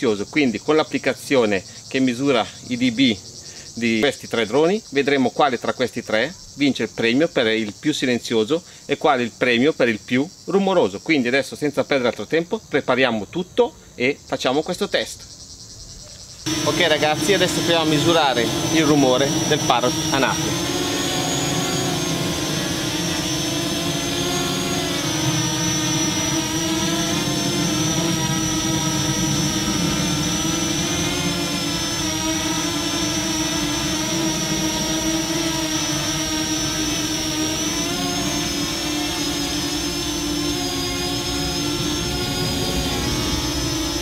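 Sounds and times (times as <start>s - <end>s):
drone propellers whining: 16.4s - 44.0s.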